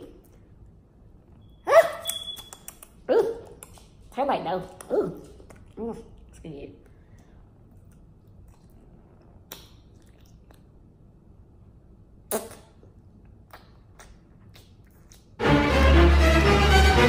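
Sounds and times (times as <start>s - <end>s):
lip smacks and clicks: 2.0s - 11.1s, 12.2s - 15.4s
wet mouth eating sounds: 4.8s - 11.3s, 12.1s - 15.4s.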